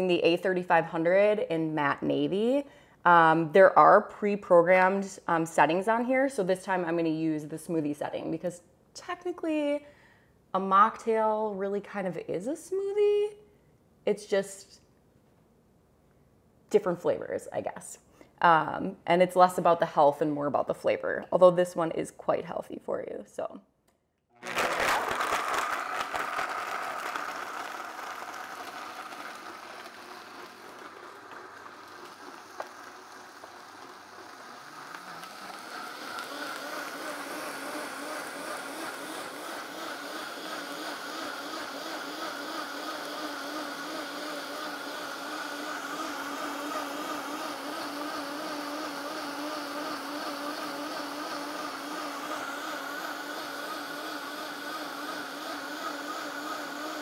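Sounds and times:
blender motor running: 0:24.4 - 0:57.0.

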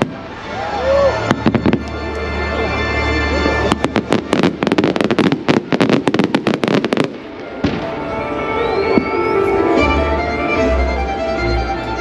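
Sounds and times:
fireworks bangs and crackles: 0:00.0 - 0:09.4
music playing: 0:00.0 - 0:12.0.

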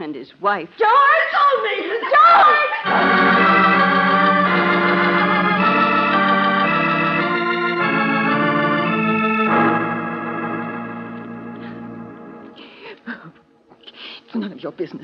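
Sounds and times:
organ playing sustained chords: 0:02.8 - 0:13.8.

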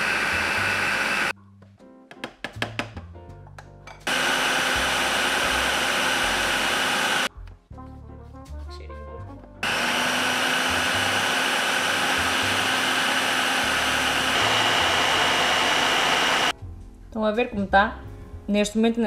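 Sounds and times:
food processor grinding nuts: 0:00.0 - 0:01.3, 0:04.1 - 0:07.3, 0:09.6 - 0:16.5.

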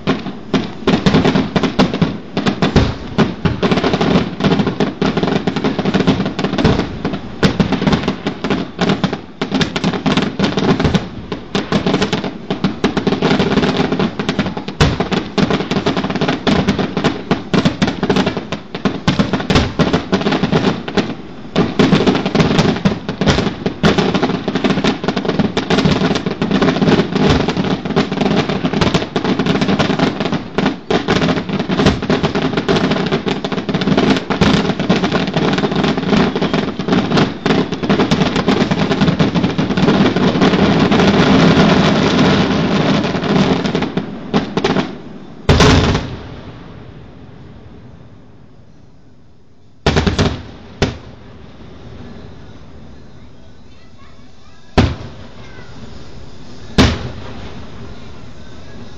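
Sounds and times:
fireworks crackling: 0:00.0 - 0:58.9
fireworks shell bursts: 0:05.9 - 0:42.0, 0:52.1 - 0:58.9.

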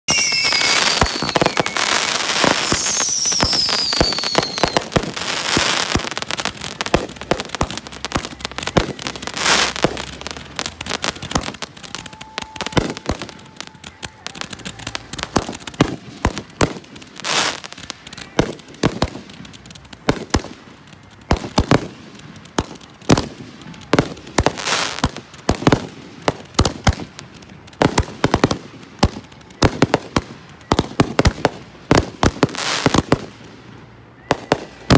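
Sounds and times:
falling firework whistle: 0:00.1 - 0:06.2, 0:11.3 - 0:16.0, 0:34.2 - 0:34.9
fireworks bangs and crackling: 0:00.1 - 0:34.9.

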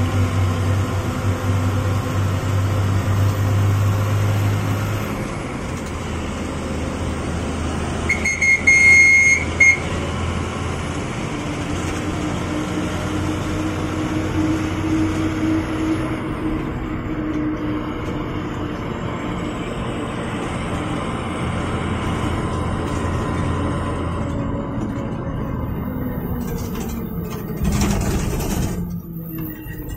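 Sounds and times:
bus engine and road noise: 0:00.0 - 0:29.9
high-pitched horn: 0:08.1 - 0:09.9.

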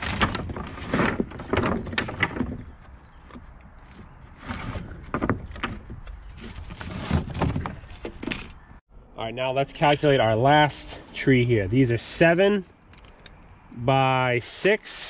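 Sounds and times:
wooden boards knocking and scraping: 0:00.0 - 0:08.6.

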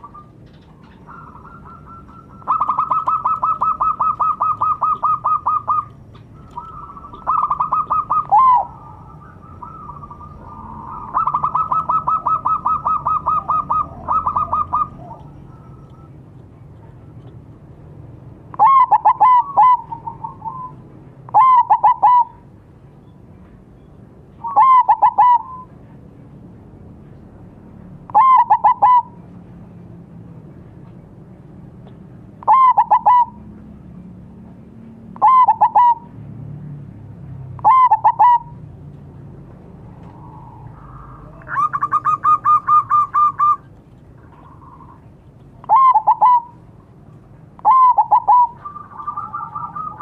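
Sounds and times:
dove cooing: 0:00.0 - 0:16.1, 0:18.6 - 0:22.4, 0:24.4 - 0:25.8, 0:28.1 - 0:29.2, 0:32.4 - 0:33.5, 0:35.2 - 0:36.1, 0:37.6 - 0:38.6, 0:39.8 - 0:47.0, 0:47.6 - 0:50.0.

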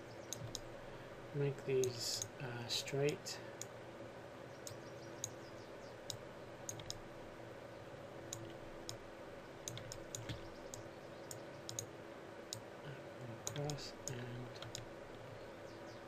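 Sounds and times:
low electrical hum: 0:00.0 - 0:16.0
computer mouse buttons clicking: 0:00.3 - 0:00.7, 0:06.1 - 0:07.0, 0:08.3 - 0:09.0, 0:09.6 - 0:11.9, 0:13.4 - 0:15.3.

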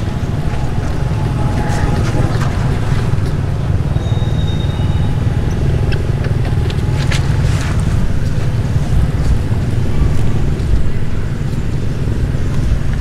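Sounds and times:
thin high tone: 0:00.0 - 0:07.6
steady low rumbling: 0:00.0 - 0:13.0.

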